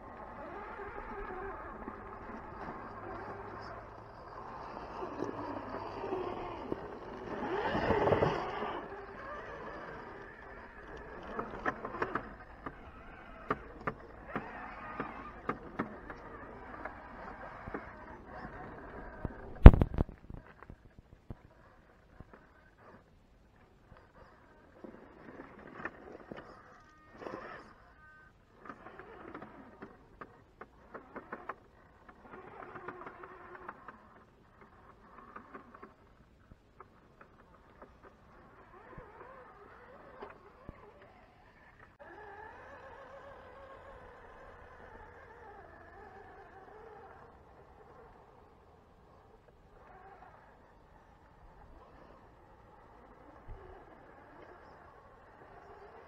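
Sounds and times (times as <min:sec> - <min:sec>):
rc car motor whirring: 0:00.0 - 0:56.0
tyres clicking on rock: 0:04.9 - 0:21.4.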